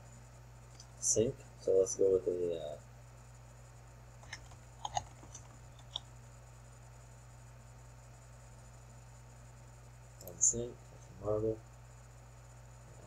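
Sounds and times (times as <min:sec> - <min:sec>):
steady low hum: 0:00.0 - 0:13.0
faint keyboard and mouse clicks: 0:04.2 - 0:06.1, 0:10.2 - 0:10.4.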